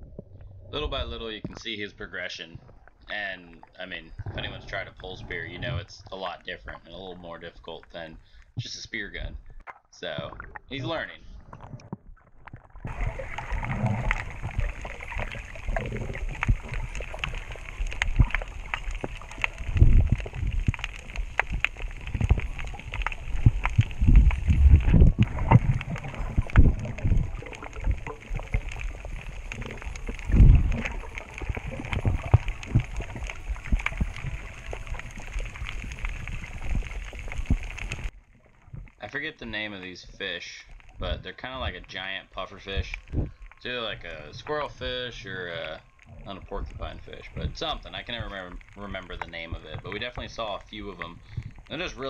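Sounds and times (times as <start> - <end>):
underwater rush of water: 11.4 - 39.0, 42.6 - 52.0
small crackling clicks: 11.4 - 52.0
deep rumbling thumps: 19.0 - 38.1.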